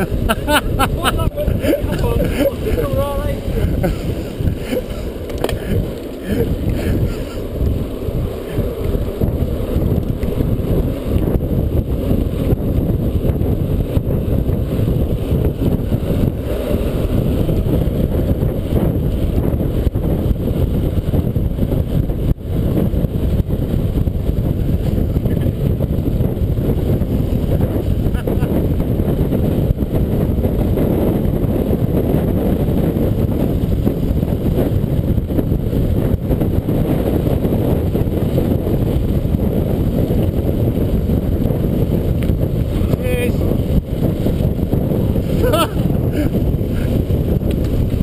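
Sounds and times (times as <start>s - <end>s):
wind buffeting microphone: 0.0s - 48.0s.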